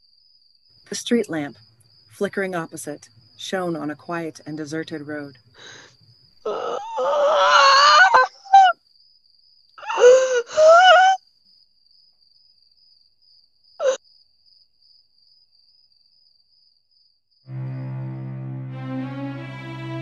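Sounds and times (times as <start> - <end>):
woman wailing and sobbing: 6.5 - 8.7, 9.8 - 11.2.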